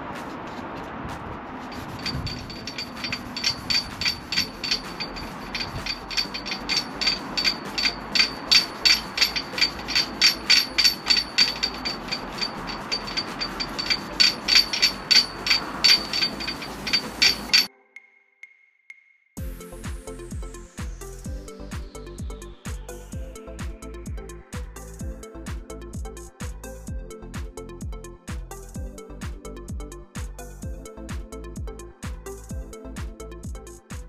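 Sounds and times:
scouring pad rasping on metal wheel: 1.7 - 17.7.

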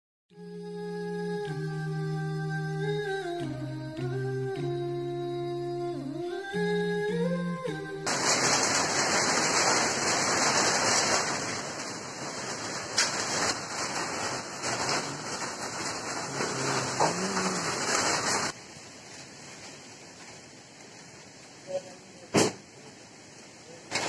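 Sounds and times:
heavy rain pouring: 7.1 - 24.0.

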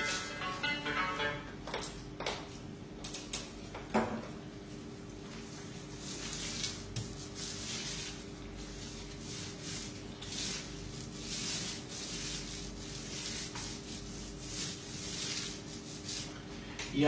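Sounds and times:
paint roller rasping on cement: 7.3 - 16.3.

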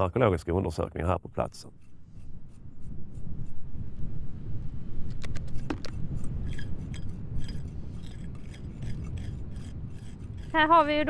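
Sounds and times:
wind rumble on microphone: 1.2 - 11.0
hand tools clicking and scraping: 5.2 - 11.0.

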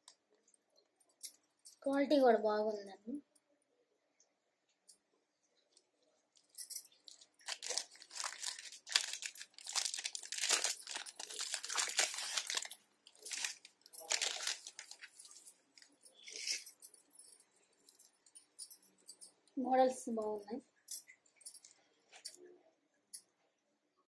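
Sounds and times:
plastic packets crinkling: 6.4 - 16.7.

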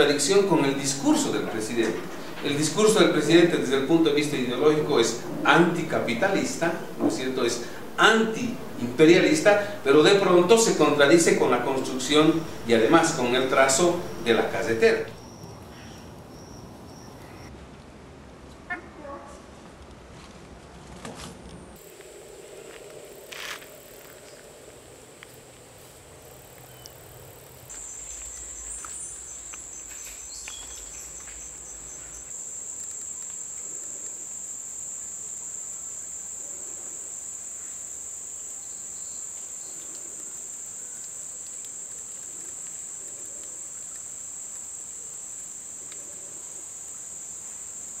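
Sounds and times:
insects droning: 0.0 - 17.5, 21.7 - 48.0.

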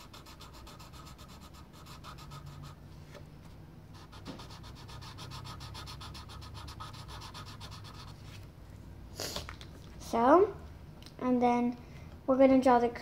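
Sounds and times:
colouring strokes scratching on paper: 0.0 - 2.8, 3.9 - 8.5.

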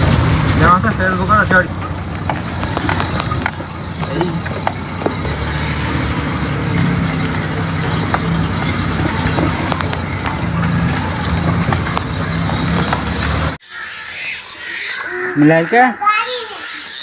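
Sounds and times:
vehicle engine running: 0.0 - 13.6
road noise: 0.0 - 17.0.

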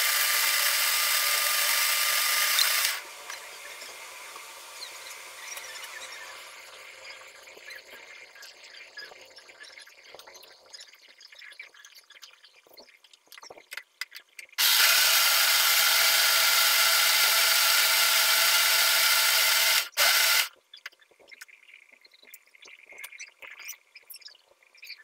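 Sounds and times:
electric blender running: 0.0 - 6.6, 14.6 - 20.5.

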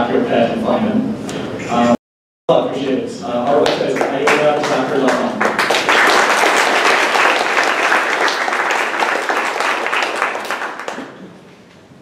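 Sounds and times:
audience applauding: 3.6 - 11.3.

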